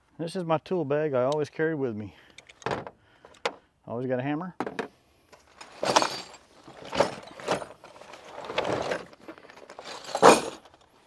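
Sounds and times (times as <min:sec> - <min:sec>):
metal wrenches clinking: 0:05.5 - 0:11.0.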